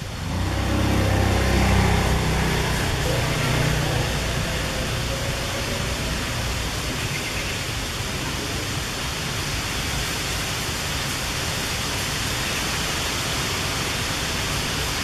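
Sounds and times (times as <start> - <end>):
vehicle engine running: 0.0 - 7.8.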